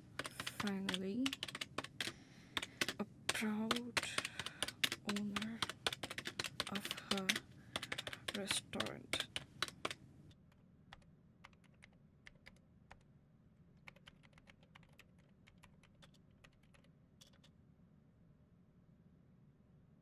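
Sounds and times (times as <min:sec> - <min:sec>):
typing on laptop keyboard: 0:00.0 - 0:10.0, 0:10.9 - 0:13.1, 0:13.8 - 0:17.5
low steady hum: 0:00.0 - 0:20.0.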